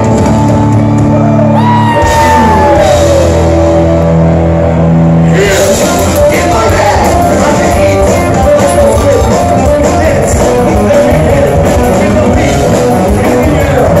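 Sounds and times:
punk rock band playing: 0.0s - 14.0s
lead vocals singing: 5.2s - 14.0s.

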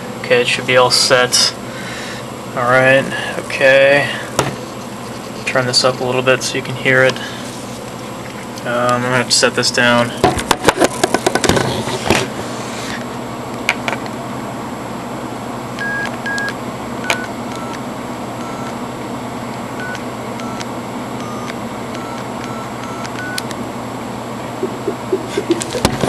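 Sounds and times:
keypad touch-tones: 15.8s - 17.8s, 18.4s - 18.8s, 19.8s - 23.6s
sharp clicks: 21.4s - 23.6s.

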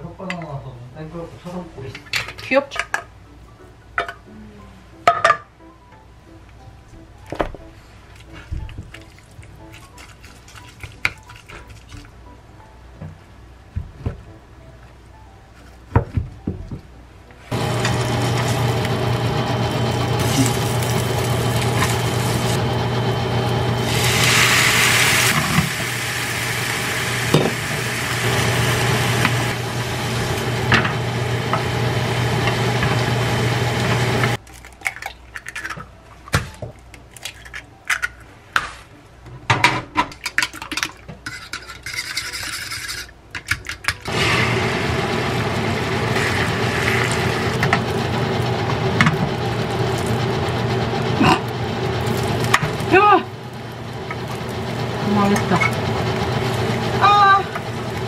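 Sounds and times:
steady hum: 17.5s - 34.4s
frying hiss: 20.2s - 22.7s, 23.4s - 34.3s.

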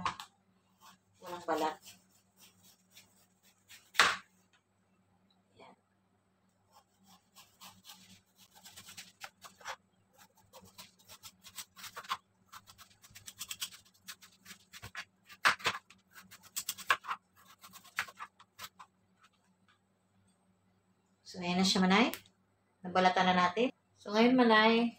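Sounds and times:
knife scraping pumpkin rind: 0.8s - 4.0s, 6.7s - 18.9s.

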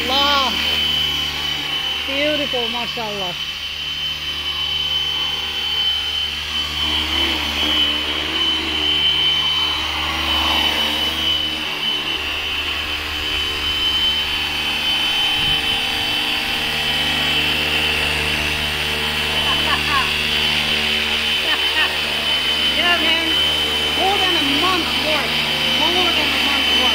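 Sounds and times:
high motor whine: 0.0s - 26.9s
rotors whirring: 0.0s - 26.9s.

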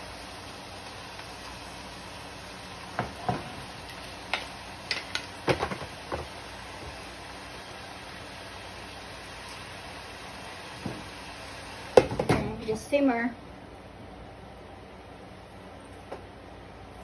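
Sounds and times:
steady hiss: 0.0s - 17.0s
wooden spatulas clacking on pan: 4.3s - 5.9s.

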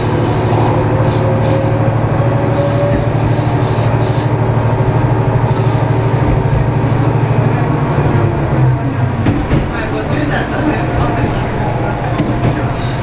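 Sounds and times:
railcar engine droning: 0.0s - 13.0s
wheel squeals: 2.5s - 4.4s, 5.4s - 6.3s.

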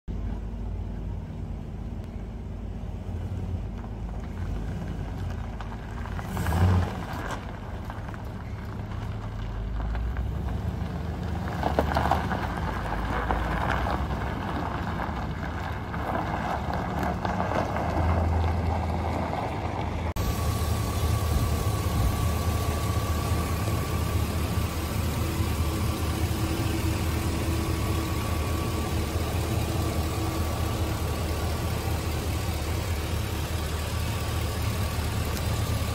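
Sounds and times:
truck engine running: 0.1s - 35.9s
thin steady whine: 20.2s - 35.9s.

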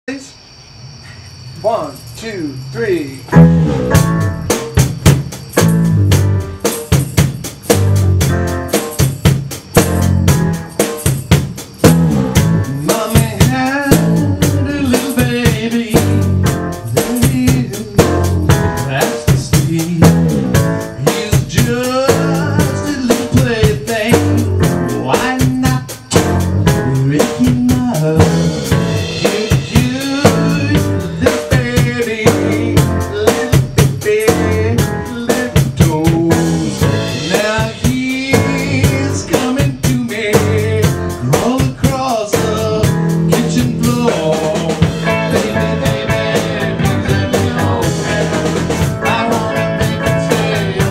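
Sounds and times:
drum kit beat: 3.3s - 50.9s
rock band playing: 3.3s - 50.9s.

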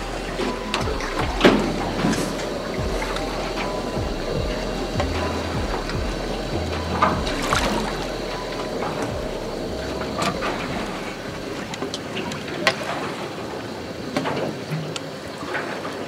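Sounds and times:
water sloshing against boat hull: 0.0s - 14.7s
sharp knocks or splashes: 0.4s - 12.0s.

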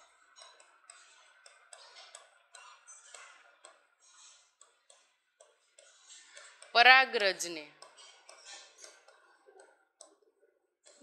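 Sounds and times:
chalk scratching on blackboard: 4.0s - 6.7s, 7.8s - 9.3s.

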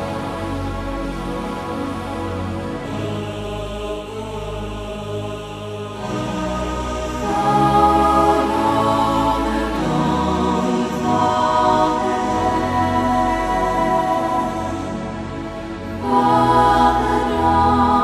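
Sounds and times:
slow music over low drone: 0.0s - 18.0s.

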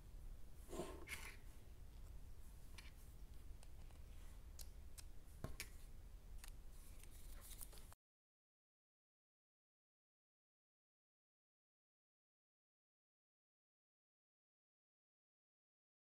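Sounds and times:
rustle or scrape: 0.6s - 1.5s.

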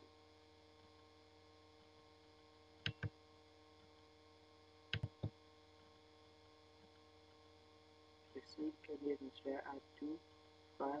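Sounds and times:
electrical mains hum: 0.0s - 11.0s
computer mouse button clicks: 2.8s - 3.1s, 4.9s - 5.4s.

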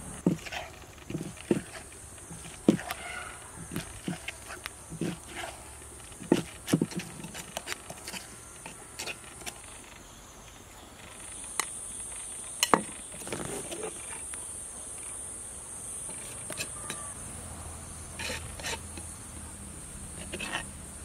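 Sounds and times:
insects buzzing: 0.0s - 21.0s
spoon scraping clay mortar: 0.2s - 10.0s, 11.0s - 14.3s, 16.0s - 17.2s, 18.1s - 19.1s, 20.1s - 20.8s.

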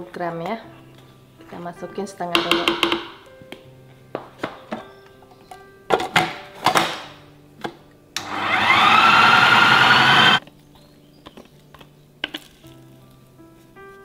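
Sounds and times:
food processor motor whining: 8.2s - 10.4s.

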